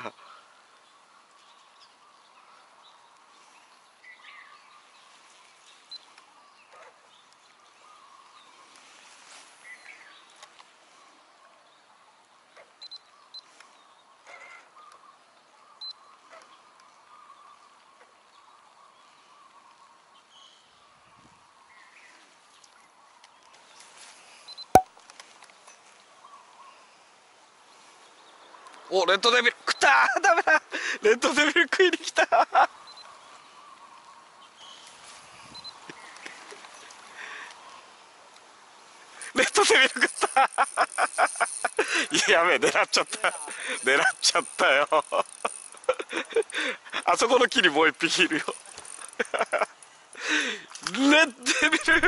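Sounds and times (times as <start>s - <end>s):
fishing reel clicks: 43.1s - 46.2s, 48.4s - 49.2s.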